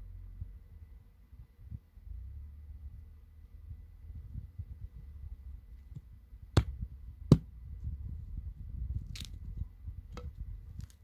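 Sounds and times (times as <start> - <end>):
low steady rumble: 0.0 - 11.0
sticks snapping: 9.1 - 9.4.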